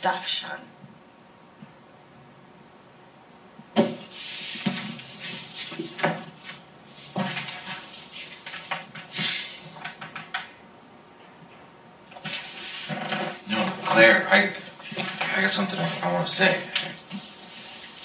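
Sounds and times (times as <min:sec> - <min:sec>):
clothes rustling: 0:03.8 - 0:09.3, 0:12.2 - 0:18.0.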